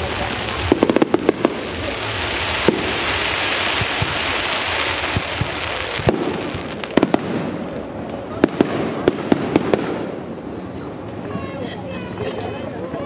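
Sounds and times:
fireworks crackling hiss: 0:00.0 - 0:13.0
firework shells bursting: 0:00.6 - 0:10.3.

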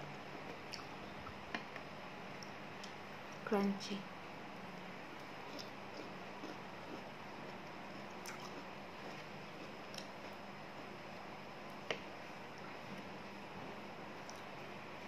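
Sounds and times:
steady background hiss: 0:00.0 - 0:15.0
chewing crunchy green beans: 0:05.1 - 0:11.0.

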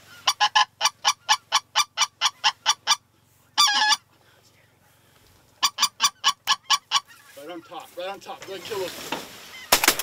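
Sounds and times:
waterfowl call notes: 0:00.0 - 0:04.1.

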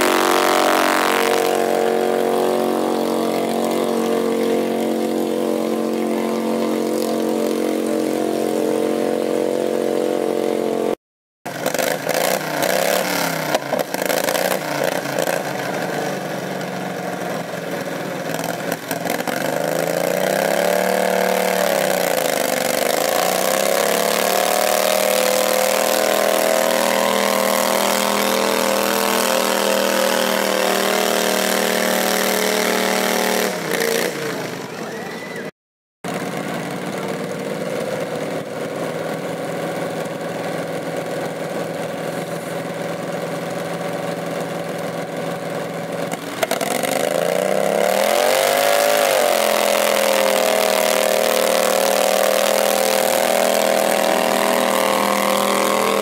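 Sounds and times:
tractor engine running under load: 0:12.8 - 0:35.2, 0:36.1 - 0:56.0.

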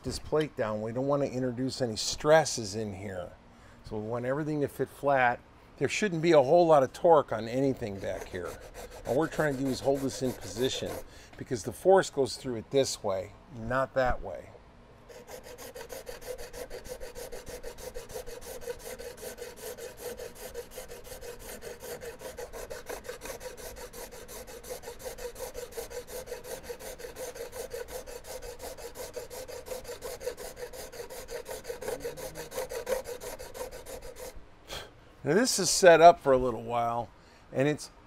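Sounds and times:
rasp filing wood: 0:07.4 - 0:11.2, 0:15.1 - 0:34.4.

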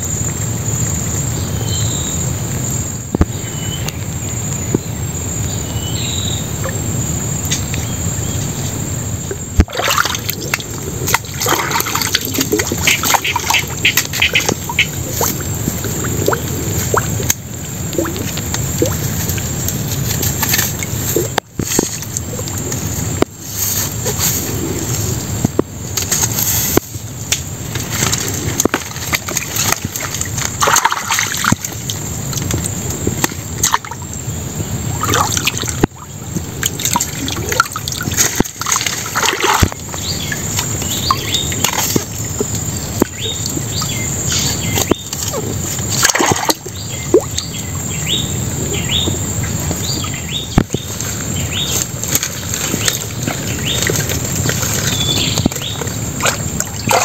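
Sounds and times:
shallow water sloshing and splashing: 0:09.2 - 0:25.1, 0:26.0 - 0:34.1, 0:34.8 - 0:47.8, 0:48.9 - 0:57.0.

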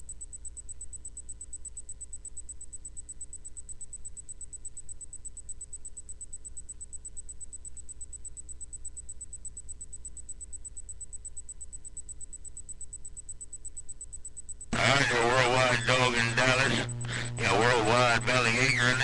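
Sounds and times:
pulsing high-pitched whine: 0:10.7 - 0:19.0
radio low hum: 0:14.7 - 0:19.0.

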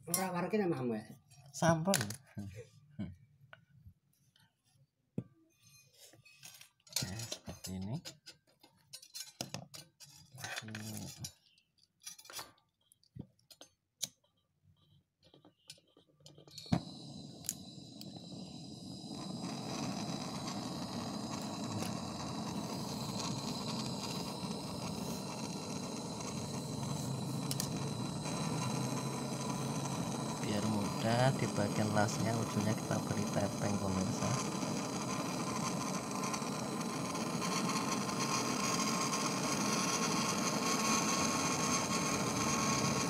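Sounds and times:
metal tools clinking: 0:06.3 - 0:12.6
gas torch hissing and whistling: 0:16.4 - 0:43.0
gas torch igniting click: 0:16.6 - 0:43.0.

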